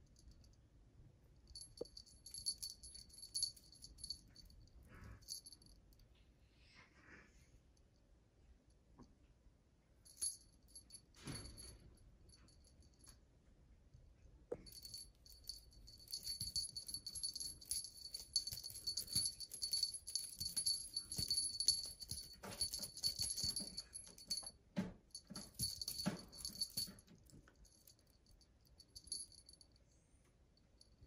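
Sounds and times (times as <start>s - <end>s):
small bell jingling: 1.5s - 6.0s, 10.1s - 13.2s, 14.5s - 29.8s.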